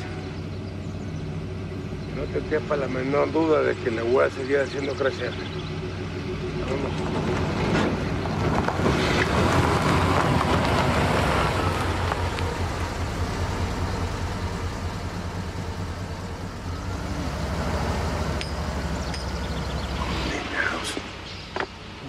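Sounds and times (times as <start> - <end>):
low engine hum: 0.0 - 22.0
truck engine pulling away: 0.0 - 22.0.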